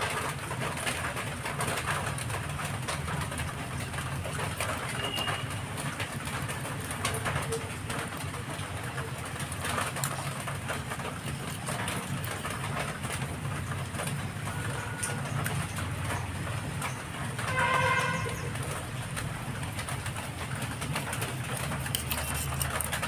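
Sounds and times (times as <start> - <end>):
knife scraping fish on stone: 20.9 - 23.0.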